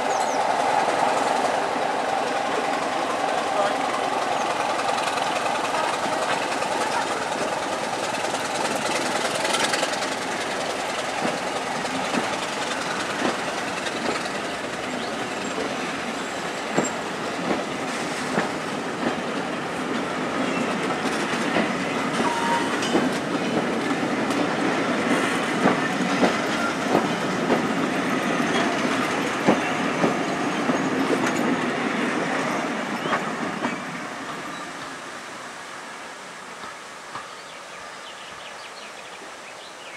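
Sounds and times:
train wheels rumbling on rails: 0.0 - 35.4
wheels clicking over rail joints: 2.8 - 19.2.

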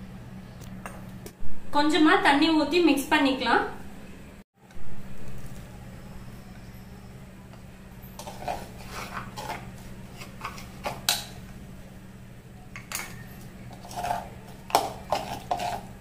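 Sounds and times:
spoon scraping a mixing bowl: 8.1 - 11.3, 12.8 - 16.0.

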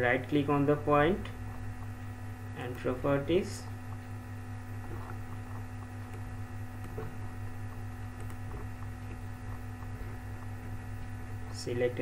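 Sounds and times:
electrical hum: 0.0 - 12.0
computer mouse clicks: 8.2 - 9.2.

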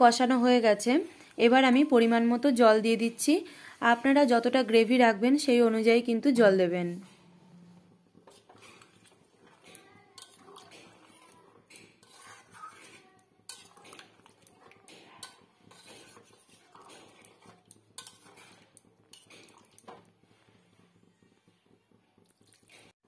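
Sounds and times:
metal spatula scraping a pan: 6.9 - 20.7.

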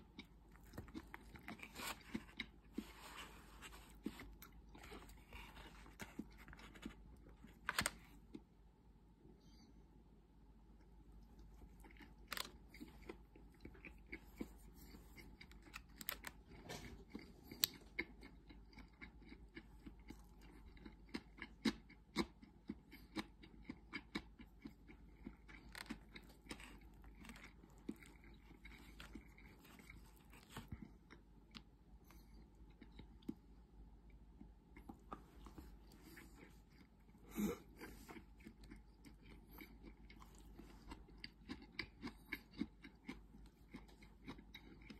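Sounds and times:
soft chewing: 0.0 - 8.6, 10.7 - 44.9.

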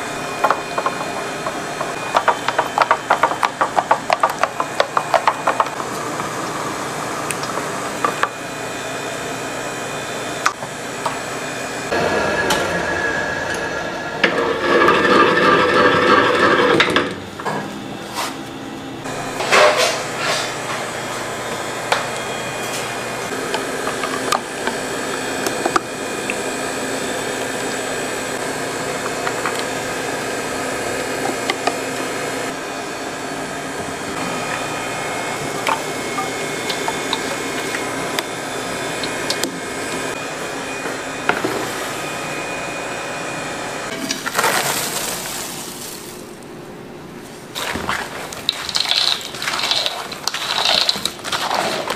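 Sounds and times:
steady machine-like noise: 0.0 - 51.9
spatulas scraping batter in bowls: 47.6 - 51.9.

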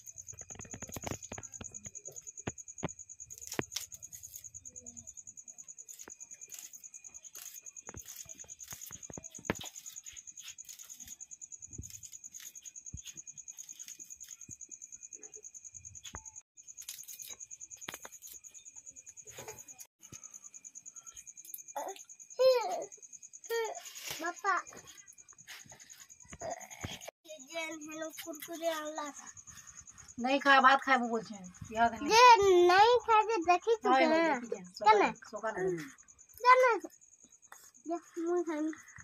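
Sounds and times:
cricket trilling: 0.0 - 39.0.

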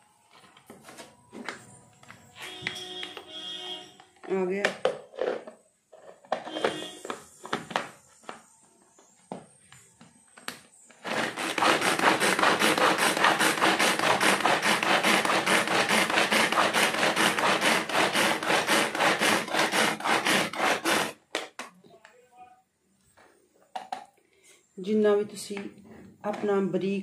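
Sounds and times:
pull-string food chopper whirring: 11.0 - 21.2.

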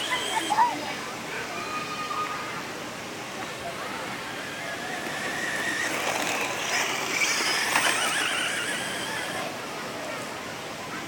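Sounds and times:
toy car motor and gear whine: 0.0 - 0.7, 4.1 - 9.5.

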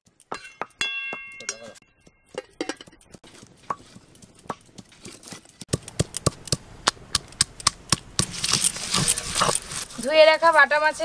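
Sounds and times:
stone pestle pounding on stone: 0.3 - 1.7
wood fire crackling: 3.0 - 11.0
gritty stone scraping: 3.2 - 6.4, 8.2 - 10.2.

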